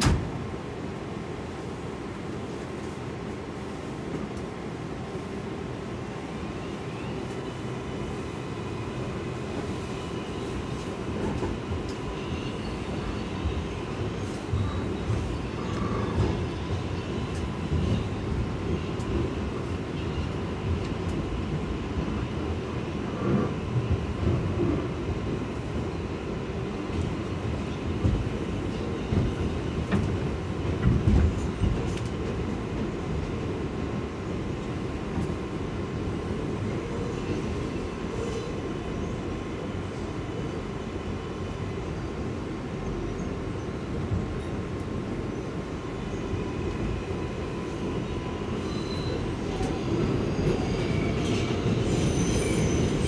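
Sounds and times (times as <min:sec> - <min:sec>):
loud knocks of subway car: 0:00.0 - 0:00.3
subway wheels rumbling on rails: 0:00.0 - 0:53.0.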